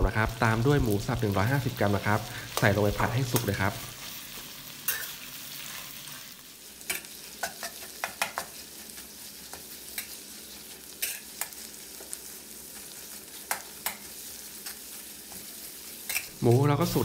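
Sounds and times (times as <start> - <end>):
meat sizzling in hot oil: 0.0 - 17.0
metal spatula scraping a pan: 4.8 - 16.6.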